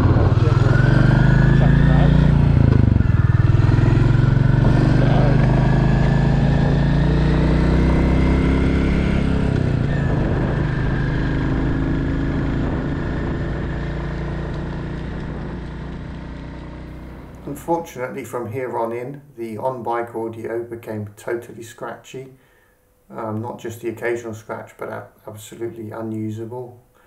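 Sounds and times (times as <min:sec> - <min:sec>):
motorcycle engine running: 0:00.0 - 0:17.5.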